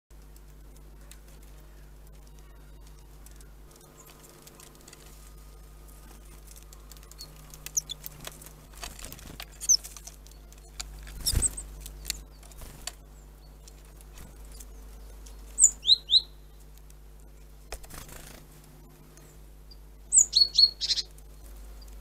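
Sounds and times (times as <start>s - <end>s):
high bird chirps: 5.4s - 16.6s, 19.2s - 21.9s.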